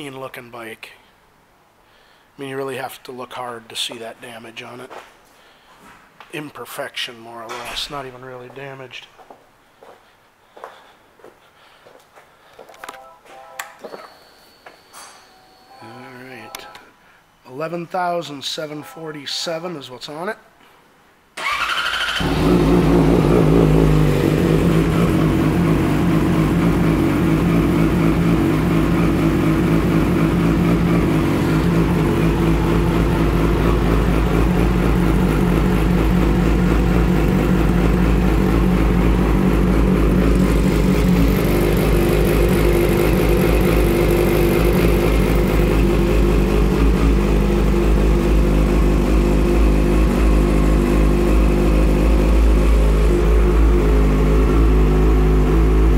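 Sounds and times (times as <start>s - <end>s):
motorcycle engine idling: 22.2s - 55.9s.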